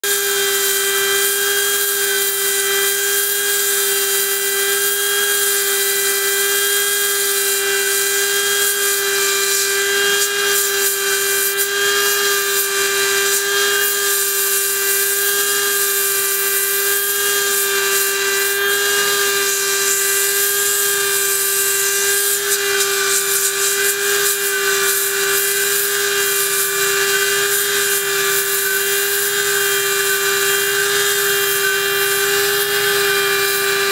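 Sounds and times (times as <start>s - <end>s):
blower motor whine: 0.0s - 33.9s
air rushing through nozzle: 18.2s - 33.9s.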